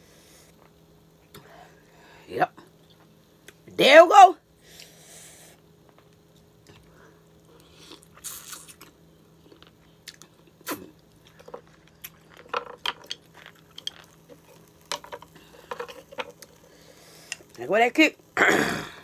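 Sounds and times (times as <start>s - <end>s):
wet chewing: 7.6s - 15.7s.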